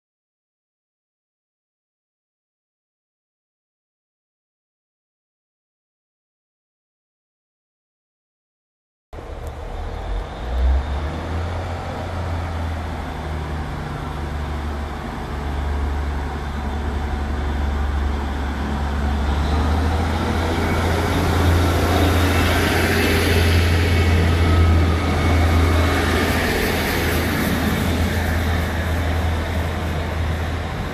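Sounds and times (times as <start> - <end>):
diesel train engine humming: 9.2 - 30.9
train wheels on rails: 9.2 - 30.9.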